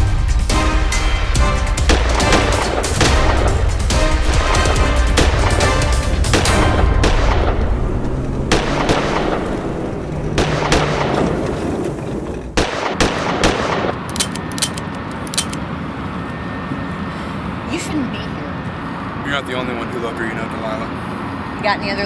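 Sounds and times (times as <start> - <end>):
handgun gunshots: 12.6 - 15.6.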